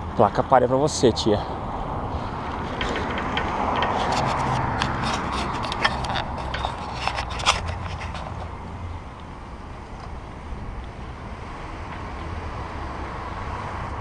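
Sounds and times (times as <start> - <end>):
wind rushing: 1.5 - 6.9
bicycle clicks and rattles: 2.6 - 8.5.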